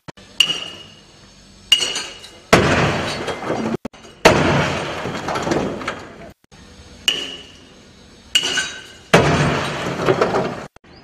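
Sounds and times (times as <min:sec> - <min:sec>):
steel pendulum impacts: 0:00.3 - 0:05.9, 0:07.0 - 0:10.6.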